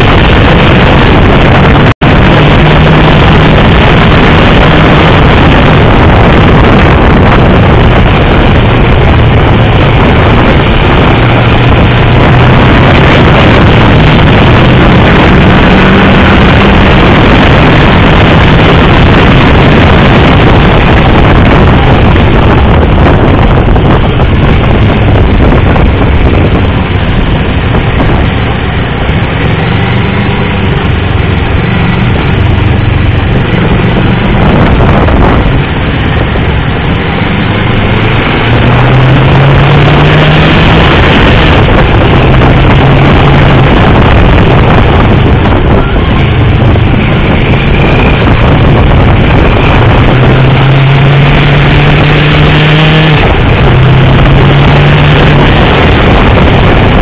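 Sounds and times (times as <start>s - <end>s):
motorcycle engine accelerating: 0.0s - 57.0s
wind rush on microphone: 0.0s - 57.0s.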